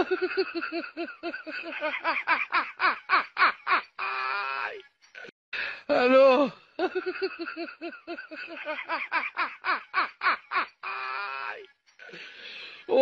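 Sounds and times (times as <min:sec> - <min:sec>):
person laughing: 0:00.0 - 0:04.3, 0:06.8 - 0:11.2.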